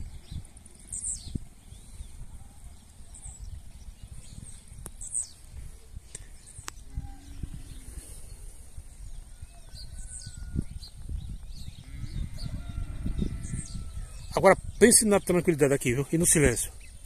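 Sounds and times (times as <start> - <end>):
wind rumble on microphone: 0.0 - 17.0.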